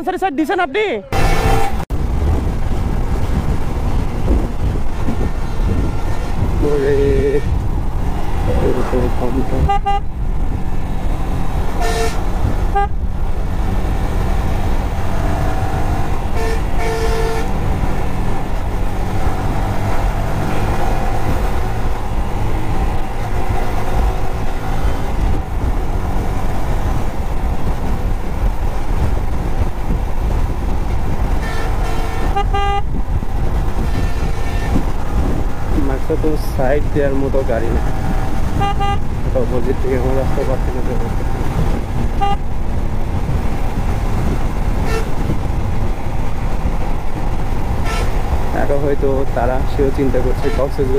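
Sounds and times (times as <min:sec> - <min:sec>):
vehicle horn toots: 0:01.1 - 0:01.8, 0:09.5 - 0:10.1, 0:11.8 - 0:13.0, 0:16.3 - 0:17.6, 0:31.4 - 0:33.0, 0:33.8 - 0:34.9, 0:38.5 - 0:39.1, 0:42.2 - 0:42.5, 0:44.8 - 0:45.2, 0:47.8 - 0:48.2, 0:50.4 - 0:50.8
wind buffeting microphone: 0:01.1 - 0:50.9.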